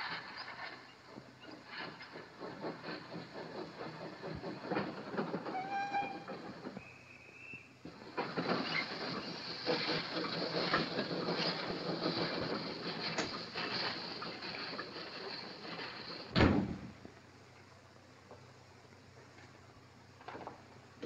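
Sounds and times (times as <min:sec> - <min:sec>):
train clattering past: 0:00.0 - 0:21.0
door slamming shut: 0:16.3 - 0:16.9.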